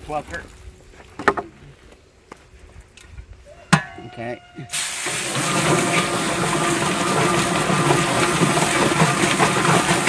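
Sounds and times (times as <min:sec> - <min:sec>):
hose spraying water: 0:04.7 - 0:10.0
chicken plucker drum running: 0:04.9 - 0:10.0.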